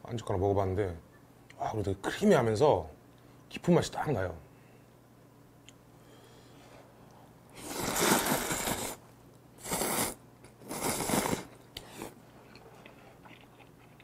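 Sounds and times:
man slurping noodles: 7.6 - 9.0, 9.6 - 12.2.

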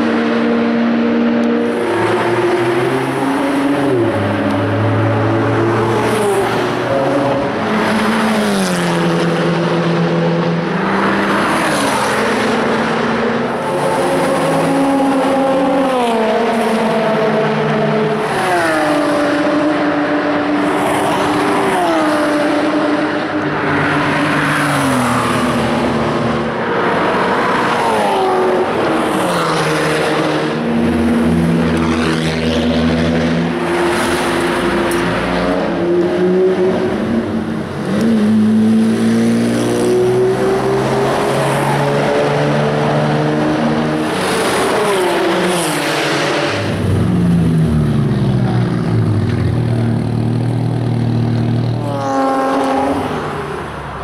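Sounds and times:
race car engines passing: 0.0 - 54.0.

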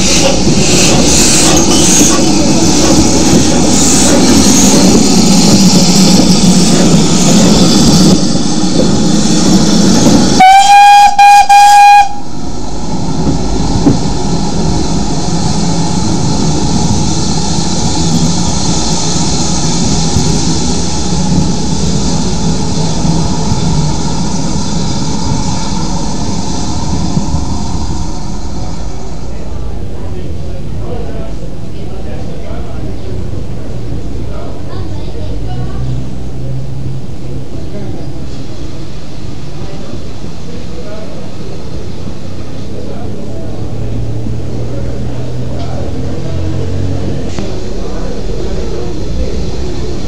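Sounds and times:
steam locomotive hissing: 0.0 - 50.0
steam whistle blast: 10.4 - 12.3.

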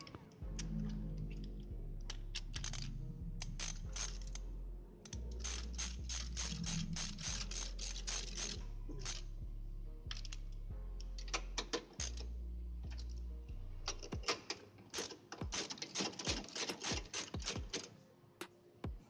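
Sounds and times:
low steady hum: 0.0 - 14.2.

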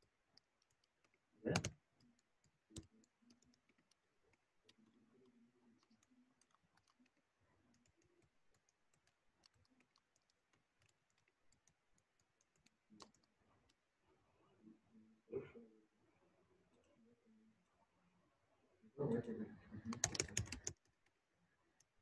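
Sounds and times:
computer keyboard and mouse clicks: 0.4 - 4.0, 4.6 - 13.3, 19.8 - 21.0.

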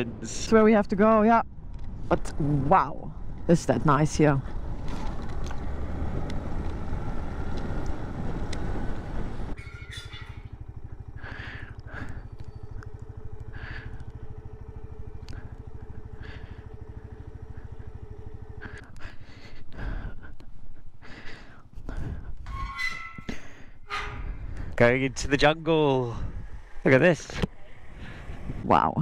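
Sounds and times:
motorcycle idling: 0.0 - 28.6
motorcycle engine riding: 0.0 - 28.9
wind noise: 21.8 - 25.4, 26.1 - 26.9, 27.8 - 29.0.

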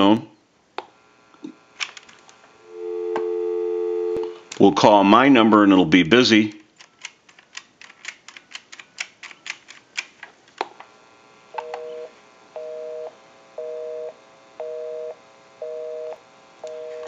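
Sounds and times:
busy signal beeps: 2.7 - 4.4, 11.6 - 17.0
telephone keypad clicking: 11.6 - 12.0.

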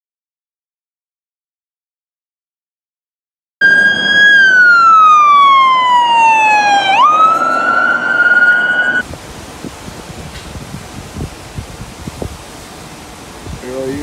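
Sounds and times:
fire engine siren: 3.6 - 9.0
faint wind noise: 8.8 - 14.0.

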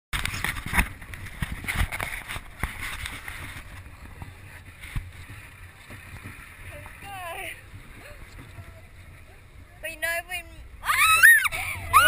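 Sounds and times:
wind noise on microphone: 0.2 - 8.9.

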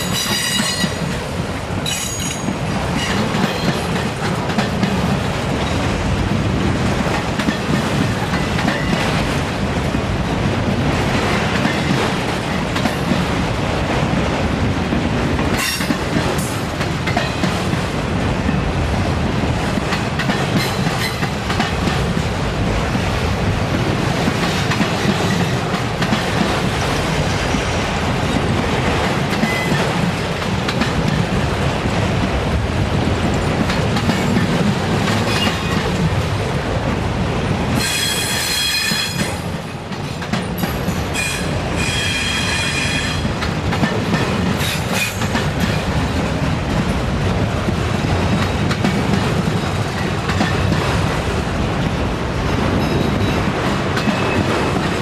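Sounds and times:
train wheels rumbling on rails: 0.0 - 55.0
shrill wheel squeal: 41.1 - 43.2.

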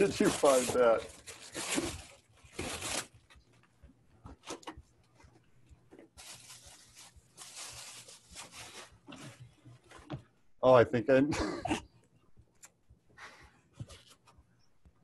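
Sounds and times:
wrapping paper tearing: 0.0 - 3.1, 6.2 - 9.0
tissue paper rustling: 0.0 - 3.3, 6.2 - 9.6.

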